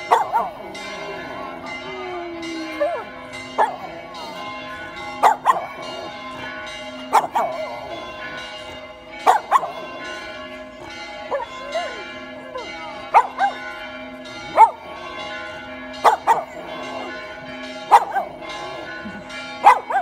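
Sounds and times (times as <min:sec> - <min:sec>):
church bells ringing: 0:00.0 - 0:20.0
dog howling: 0:01.7 - 0:03.9.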